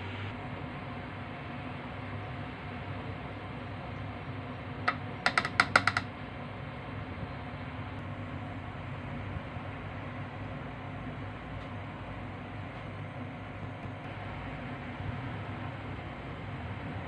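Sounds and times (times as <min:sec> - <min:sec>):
steady background hum: 0:00.0 - 0:17.0
spoon tapping ceramic bowl: 0:04.9 - 0:06.1.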